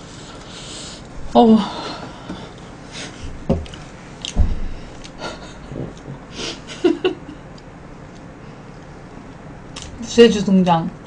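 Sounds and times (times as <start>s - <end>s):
dull thumps: 3.3s - 6.2s.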